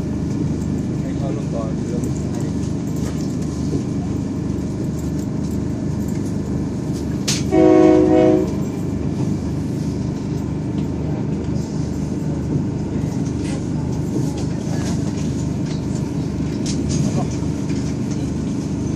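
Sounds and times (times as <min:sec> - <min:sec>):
train rumbling: 0:00.0 - 0:18.9
train horn: 0:07.4 - 0:08.7.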